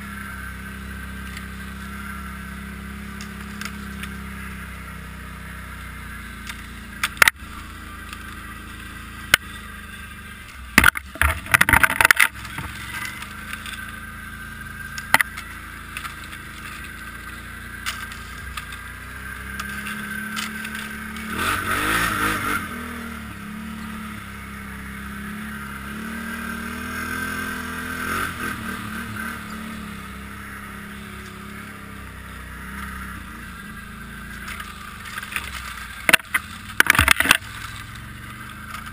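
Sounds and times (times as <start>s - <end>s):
quad bike engine running: 0.0s - 38.9s
sharp knocks and rattles: 10.7s - 13.8s, 34.5s - 37.8s.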